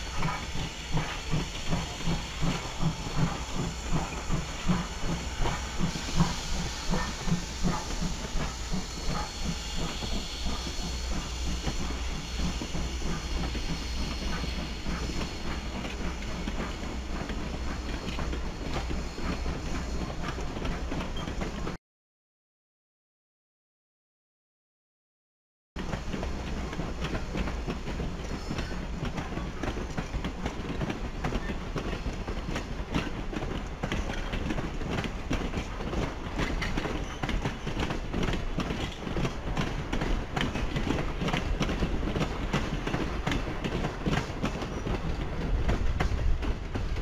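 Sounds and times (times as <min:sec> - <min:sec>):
wheels clicking on rail: 0:25.8 - 0:47.0.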